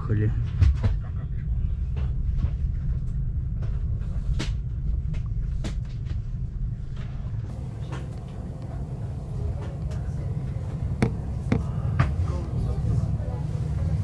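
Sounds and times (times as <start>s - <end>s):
train rumble: 0.0s - 14.0s
sharp clicks and knocks: 10.7s - 12.1s.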